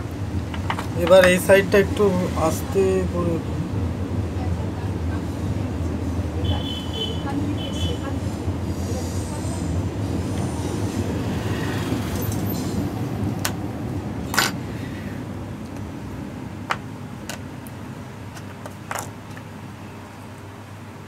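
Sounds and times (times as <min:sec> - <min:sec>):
steady low rumble: 0:00.0 - 0:06.7, 0:07.3 - 0:18.3
clicks and taps of handled parts: 0:00.5 - 0:01.4, 0:16.7 - 0:19.5.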